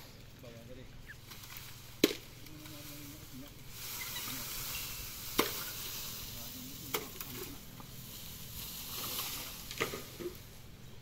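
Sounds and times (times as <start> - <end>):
bamboo leaves rustling: 1.0 - 11.0
bamboo stalks knocking: 1.2 - 2.8, 5.2 - 6.0, 6.9 - 7.9, 8.9 - 10.4.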